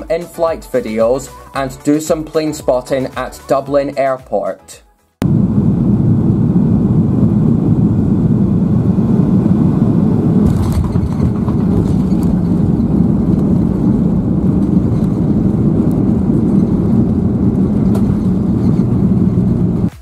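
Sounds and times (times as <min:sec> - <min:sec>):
airplane cabin engine noise: 0:05.2 - 0:20.0
plane touching down on runway: 0:05.2 - 0:20.0.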